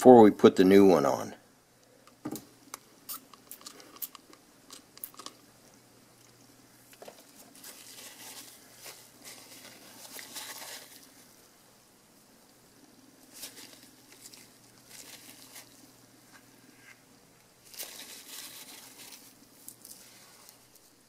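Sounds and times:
sharp clicks and crinkles: 1.8 - 5.4.

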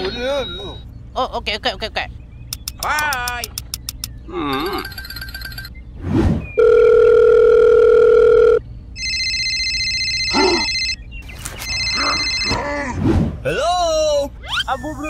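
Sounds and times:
electronic phone ringtone trilling: 4.5 - 5.7, 6.6 - 11.0, 11.6 - 12.7
dial tone: 6.6 - 11.0, 11.6 - 12.6.

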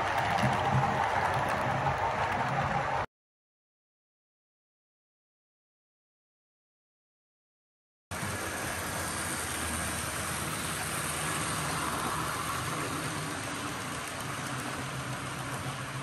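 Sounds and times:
model train wheels on rails: 0.0 - 3.1, 8.1 - 16.0.

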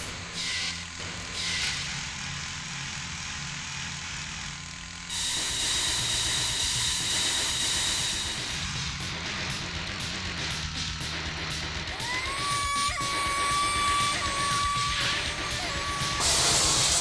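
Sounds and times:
low mechanical hum: 0.0 - 17.0
jet-like hiss with high whine: 5.1 - 8.6, 12.0 - 17.0.

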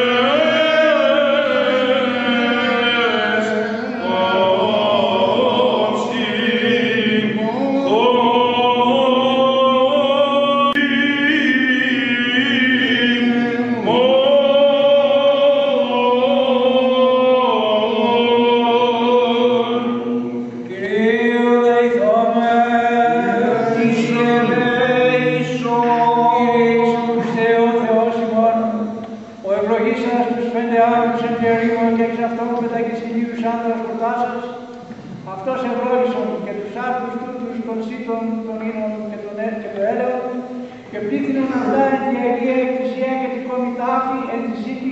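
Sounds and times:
men singing chant: 0.0 - 28.8, 41.0 - 42.9.

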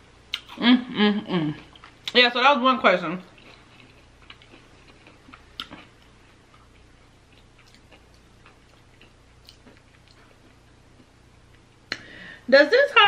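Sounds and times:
chewing with wet mouth clicks: 3.3 - 12.0.

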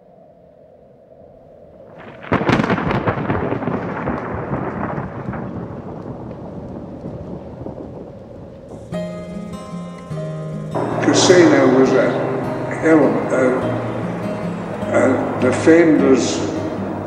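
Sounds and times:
thunderclap with rolling rumble: 1.9 - 9.8, 10.7 - 17.0
faint drone: 9.8 - 17.0.

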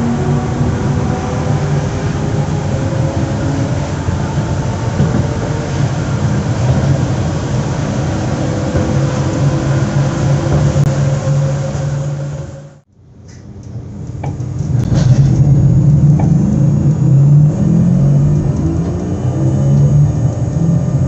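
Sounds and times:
stationary train equipment humming: 0.0 - 21.0.

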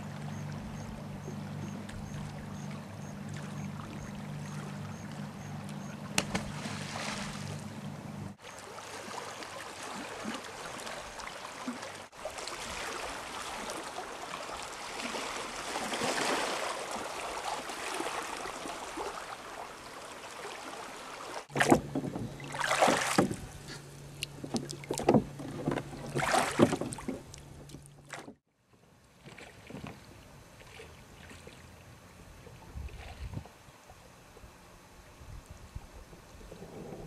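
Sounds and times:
low steady hum: 0.0 - 9.3
water rushing: 0.0 - 28.3
oars splashing in water: 0.0 - 28.4, 29.2 - 31.8
faint shoreline sound: 0.0 - 37.0.

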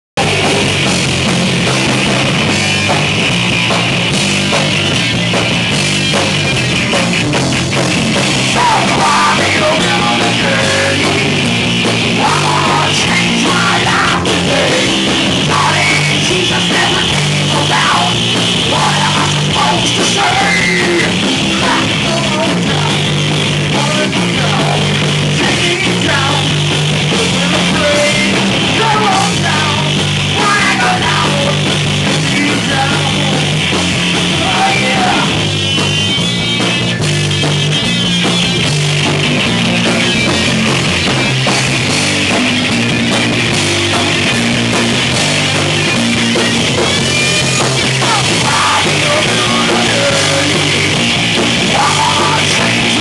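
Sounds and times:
rock band playing: 0.2 - 53.0
person singing: 8.5 - 11.4, 12.0 - 23.1, 23.7 - 33.6, 34.2 - 35.4, 47.8 - 53.0.

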